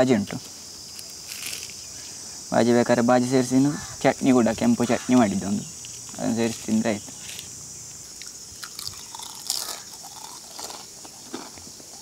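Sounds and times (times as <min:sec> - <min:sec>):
crickets chirring: 0:00.0 - 0:12.0
crisp food crackling and crunching: 0:00.9 - 0:01.8, 0:08.2 - 0:12.0.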